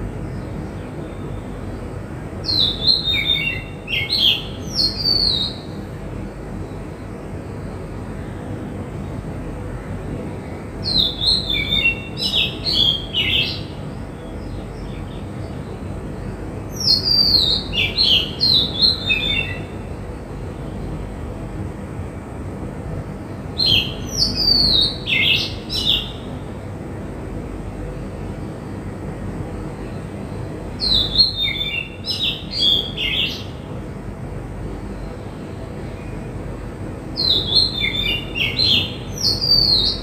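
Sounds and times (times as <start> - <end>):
low background noise: 0.0 - 40.0
songbird whistling: 2.5 - 5.7, 10.8 - 13.7, 16.8 - 19.7, 23.6 - 26.3, 30.8 - 33.5, 37.2 - 40.0.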